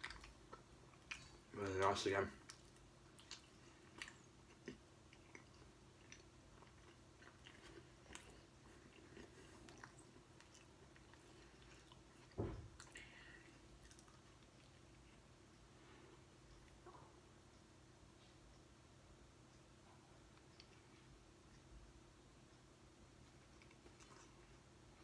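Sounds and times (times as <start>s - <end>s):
faint chewing: 0.0s - 18.6s, 19.5s - 21.8s, 22.5s - 25.0s
soft thump: 12.4s - 12.7s.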